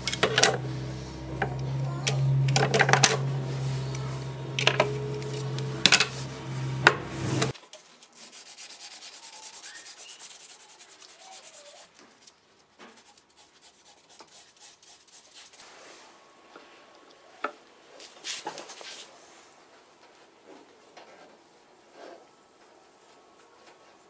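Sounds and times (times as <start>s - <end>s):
steady low hum: 0.0s - 7.6s.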